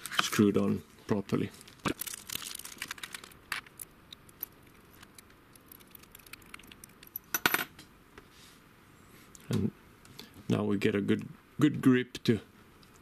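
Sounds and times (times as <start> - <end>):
small metal parts clinking: 1.9 - 7.7.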